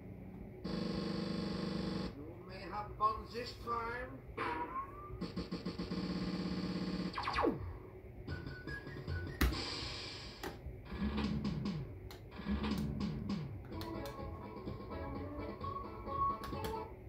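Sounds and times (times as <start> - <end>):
fast-pulsing synth tone: 4.7 - 7.9.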